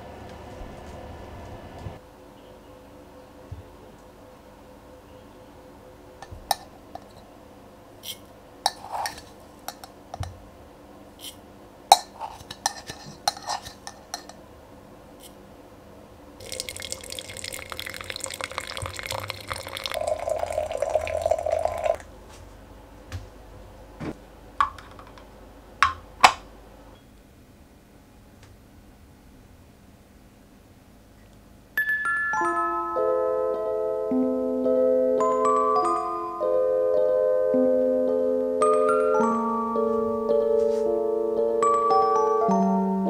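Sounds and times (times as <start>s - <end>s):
tea clinking into glass teapot: 16.4s - 22.0s
water pouring into a teapot: 16.4s - 22.0s.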